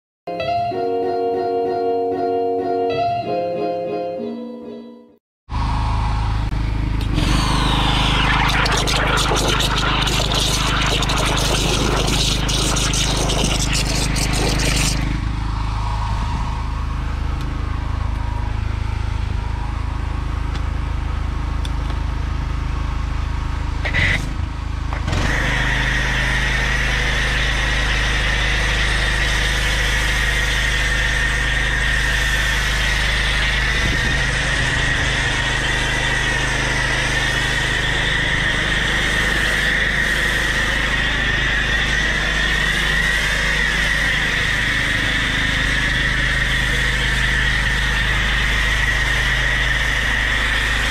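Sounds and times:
petrol generator humming: 0:05.5 - 0:50.9
pressure washer spraying hiss: 0:08.0 - 0:15.1, 0:25.3 - 0:50.9.

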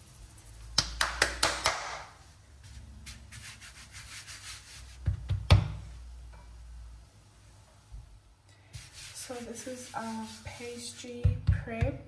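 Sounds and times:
faint rubbing of pastry: 0:00.0 - 0:00.8, 0:02.5 - 0:05.1, 0:08.6 - 0:11.2.

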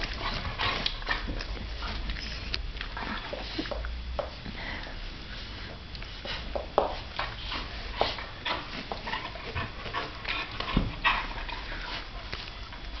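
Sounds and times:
dogs huffing and snuffling: 0:04.6 - 0:13.0.

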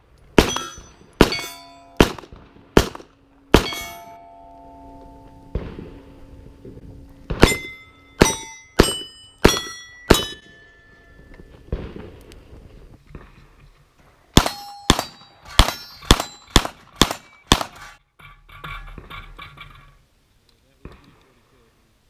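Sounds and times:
steel plate ringing clang: 0:00.4 - 0:02.1, 0:03.5 - 0:06.6, 0:07.4 - 0:11.5, 0:14.4 - 0:19.4
pistol shots: 0:00.4 - 0:04.0, 0:07.3 - 0:10.6, 0:14.4 - 0:17.9.

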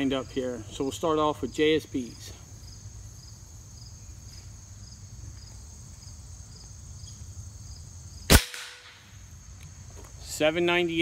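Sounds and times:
insects chirping: 0:00.0 - 0:11.0
air rifle shot: 0:08.3 - 0:09.1.

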